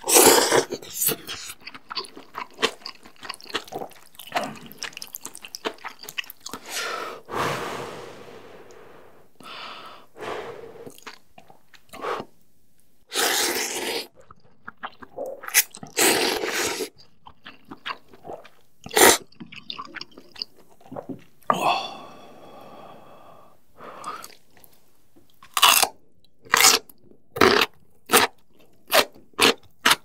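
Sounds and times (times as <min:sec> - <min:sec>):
chewing and lip smacks: 0:00.8 - 0:06.7
slurping noodles: 0:06.5 - 0:11.2, 0:13.1 - 0:14.2, 0:15.3 - 0:16.9.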